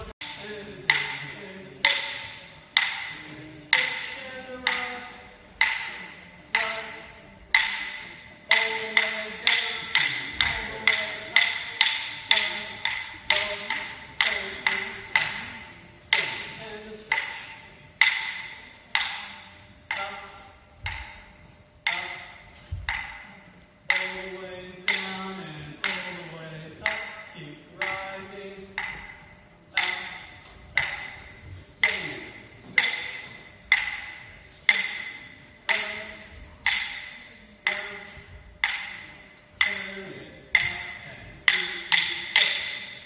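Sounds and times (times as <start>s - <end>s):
sharp percussive clacks echoing: 0.0s - 43.0s
wooden clapsticks striking: 0.0s - 43.0s.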